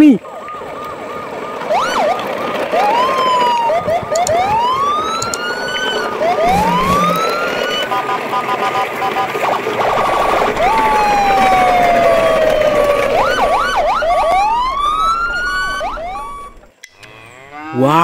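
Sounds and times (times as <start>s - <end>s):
electronic toy siren warbling: 2.8s - 8.0s, 10.0s - 16.6s.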